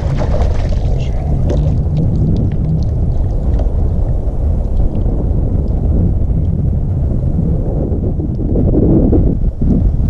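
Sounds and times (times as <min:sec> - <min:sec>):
water dripping and splashing: 0:00.0 - 0:06.5
wind buffeting microphone: 0:00.0 - 0:10.0.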